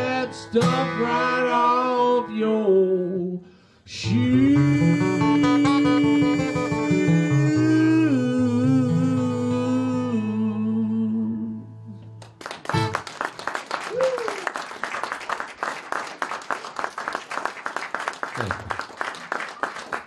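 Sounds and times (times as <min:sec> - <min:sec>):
audience applauding: 0:12.2 - 0:20.0.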